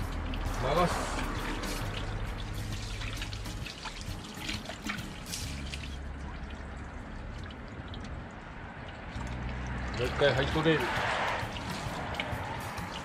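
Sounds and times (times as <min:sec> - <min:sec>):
water dripping on ground: 0:00.0 - 0:13.0
water splashing on metal wheel: 0:00.0 - 0:13.0.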